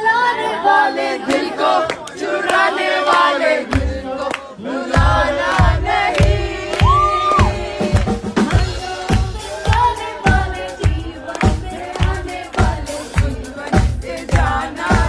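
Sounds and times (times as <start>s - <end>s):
crowd singing and cheering: 0.0s - 15.0s
kick drum beat: 5.0s - 15.0s
woman singing into microphone: 5.0s - 15.0s.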